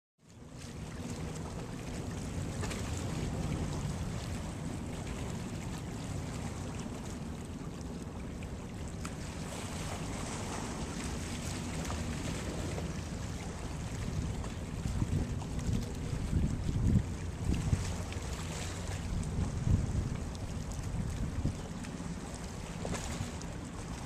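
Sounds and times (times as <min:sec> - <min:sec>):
water washing on hull: 0:00.3 - 0:24.0
wind on microphone: 0:09.2 - 0:24.0.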